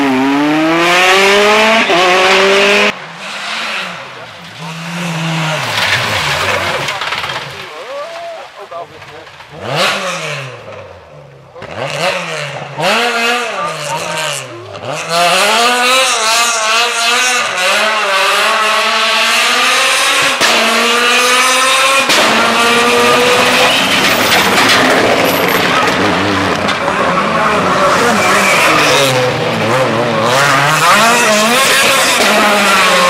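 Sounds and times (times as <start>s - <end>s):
rally car engines at full throttle: 0.0s - 33.0s
tyres on gravel: 3.4s - 9.8s, 23.1s - 29.6s.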